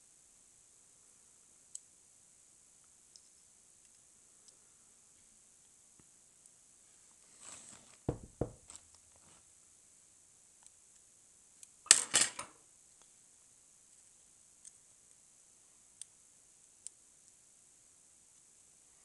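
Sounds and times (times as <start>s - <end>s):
knocks on table: 8.1s - 8.7s.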